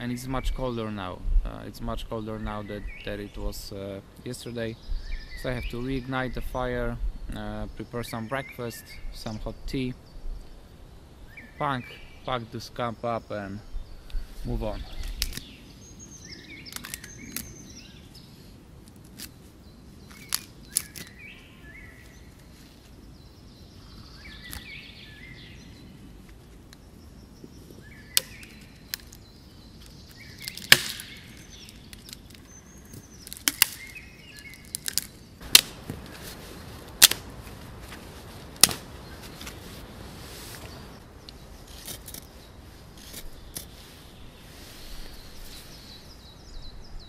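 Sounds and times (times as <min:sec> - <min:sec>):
birds chirping: 0:00.0 - 0:47.0
dry sticks snapping: 0:15.0 - 0:15.6, 0:16.6 - 0:17.6, 0:18.8 - 0:19.4, 0:20.1 - 0:21.3, 0:24.4 - 0:24.8, 0:28.0 - 0:39.6, 0:40.6 - 0:42.3.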